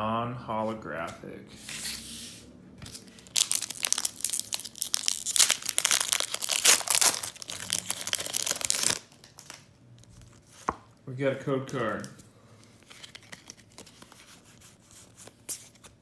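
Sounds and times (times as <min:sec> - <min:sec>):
foil wrapper crinkling and tearing: 0:03.0 - 0:09.7.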